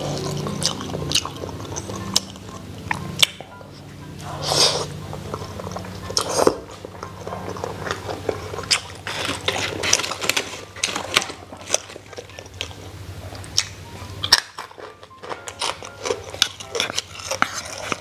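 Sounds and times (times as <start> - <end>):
wet chewing and mouth clicks: 0.0 - 3.6, 4.2 - 18.0
person slurping food: 4.2 - 5.0.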